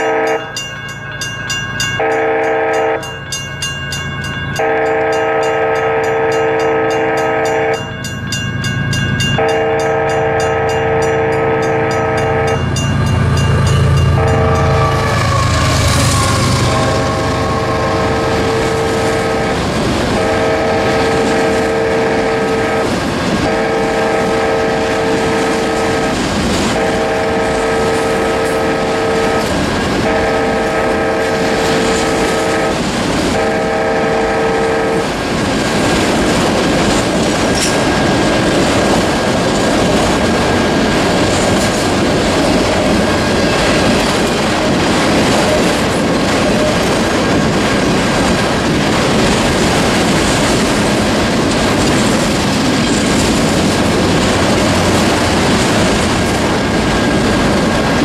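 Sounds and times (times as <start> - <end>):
crossing horn blasts: 0.0 - 0.5, 2.0 - 3.2, 4.6 - 7.9, 9.4 - 35.0
crossing bell ringing: 0.0 - 35.3, 37.0 - 48.4
freight train clattering on rails: 0.0 - 58.0.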